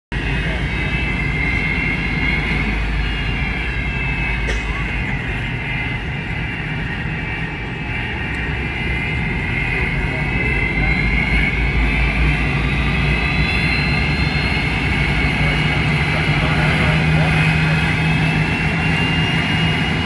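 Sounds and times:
jet engine rumble: 0.1s - 20.0s
jet engine whine: 0.1s - 20.0s.

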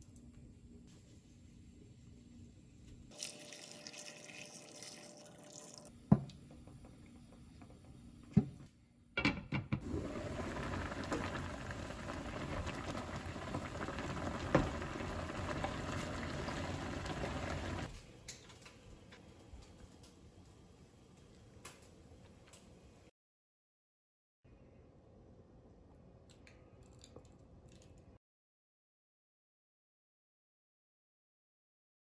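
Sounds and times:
liquid pouring into pan: 3.1s - 5.9s, 9.8s - 17.9s
sugar pouring hiss: 3.1s - 5.9s, 9.8s - 17.9s.

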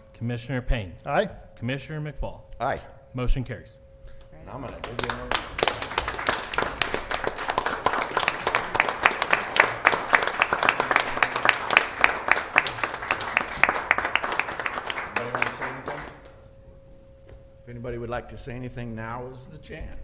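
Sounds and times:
crowd applauding: 4.7s - 16.4s.

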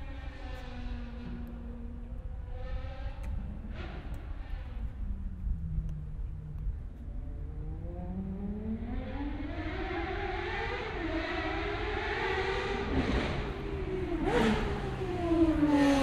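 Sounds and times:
race car engine accelerating: 7.3s - 16.0s.

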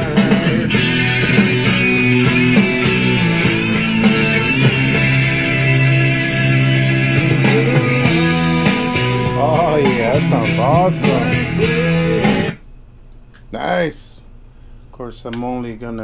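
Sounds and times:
rock music through speaker: 0.0s - 12.6s.

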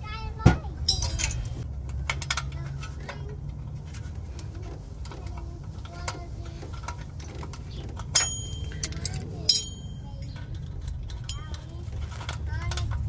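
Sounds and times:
sharp ringing metal click: 8.2s - 10.4s.

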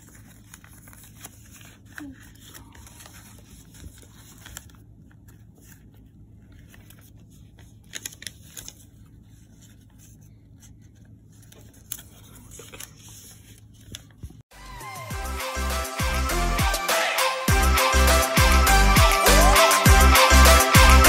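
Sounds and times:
foil paper crinkling: 0.0s - 14.4s
paper crackling: 0.0s - 14.4s.

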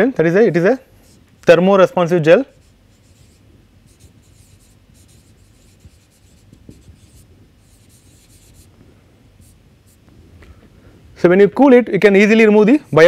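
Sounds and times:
marker scratching on whiteboard: 2.5s - 8.7s, 9.4s - 10.0s.

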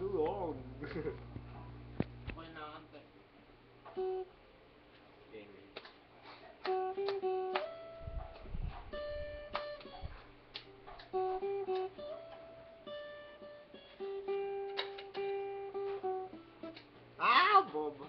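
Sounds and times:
acoustic guitar picking and strumming: 3.8s - 4.4s, 6.2s - 18.0s.

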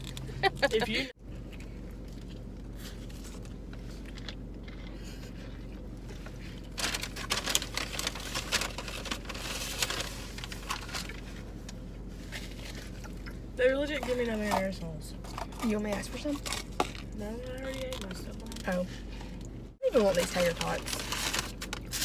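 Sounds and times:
low hum inside car: 0.0s - 22.0s
paper wrappers crinkling: 6.5s - 11.4s, 19.8s - 22.0s.

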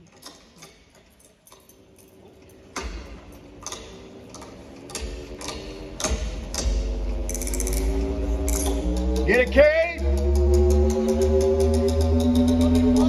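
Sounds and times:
low electrical hum: 1.5s - 13.0s
switches clicking: 2.7s - 9.3s
clock-like ticking: 2.7s - 13.0s.

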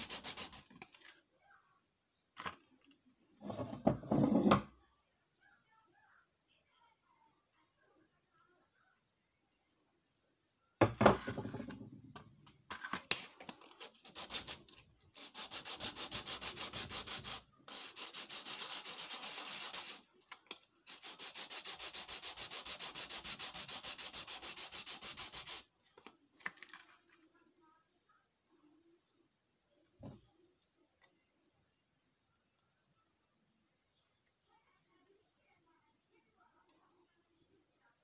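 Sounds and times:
wood rubbed on sandpaper: 0.0s - 0.7s, 13.9s - 14.6s, 15.2s - 20.0s, 20.9s - 25.7s.

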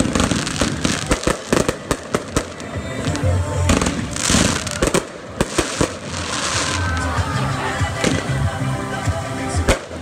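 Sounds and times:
hissing crackle of fireworks: 0.0s - 7.3s, 9.6s - 10.0s
fireworks bangs and crackles: 0.0s - 8.6s, 9.6s - 10.0s.

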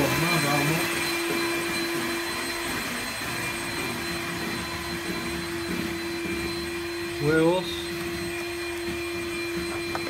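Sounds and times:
electric mixer whirring: 0.0s - 10.0s.

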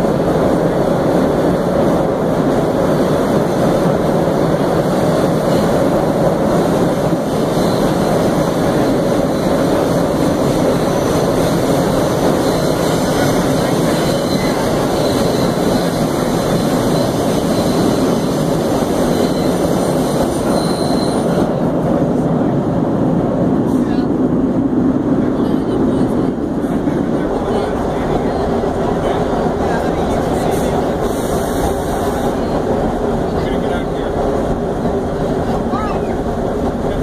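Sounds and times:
subway car wheels rumbling: 0.0s - 37.0s.

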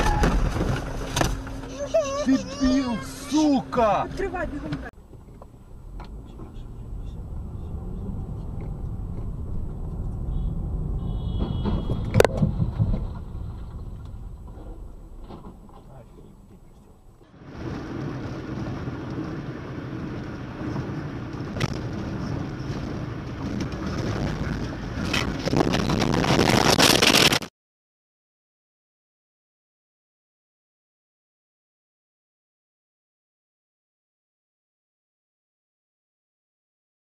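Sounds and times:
engine and road rumble: 0.0s - 27.5s
wind and road noise: 0.0s - 27.5s
car crash impact: 11.2s - 15.8s.

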